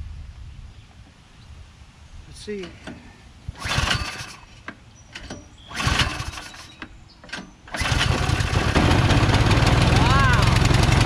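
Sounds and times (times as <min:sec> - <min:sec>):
recoil starter pulls: 0:02.6 - 0:11.0
small gas engine running: 0:03.5 - 0:06.8, 0:07.7 - 0:11.0.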